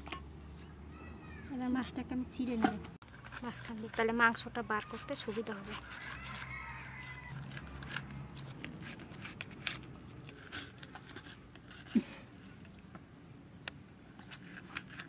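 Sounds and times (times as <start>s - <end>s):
metal utensil scraping fish: 2.6s - 12.0s.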